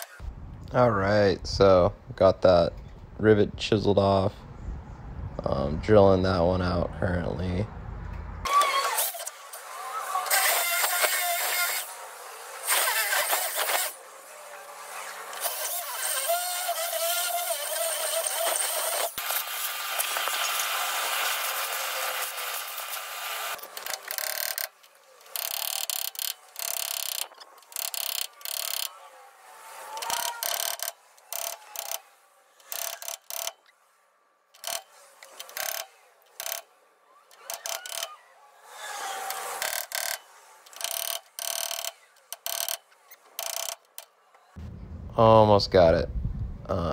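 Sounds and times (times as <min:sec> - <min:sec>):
hammer drill whirring: 0:08.5 - 0:12.0, 0:29.8 - 0:32.0, 0:34.6 - 0:44.0.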